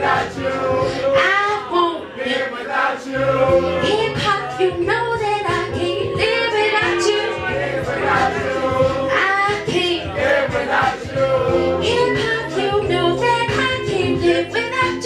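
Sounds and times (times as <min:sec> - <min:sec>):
backing beat with bass line: 0:00.0 - 0:01.6, 0:03.3 - 0:15.0
woman singing into a microphone: 0:00.8 - 0:02.2, 0:03.7 - 0:07.6, 0:08.8 - 0:10.2, 0:11.5 - 0:15.0.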